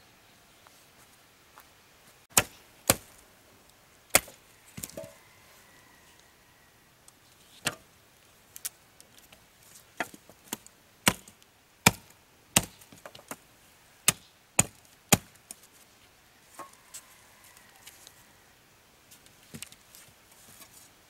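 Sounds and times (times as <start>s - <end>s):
wood chopping strikes: 2.3s - 3.2s, 4.1s - 5.1s, 10.0s - 13.4s, 14.1s - 15.3s.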